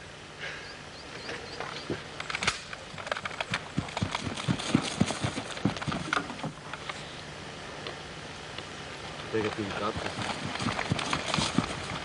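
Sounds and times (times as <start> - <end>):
footsteps running over grass: 3.3 - 6.6, 9.5 - 12.0.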